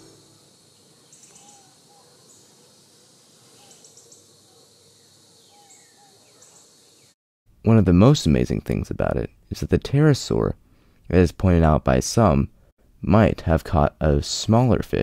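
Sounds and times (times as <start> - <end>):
faint lower calls: 0.0 - 2.7
insects chirping in pulsed bursts: 0.0 - 7.2.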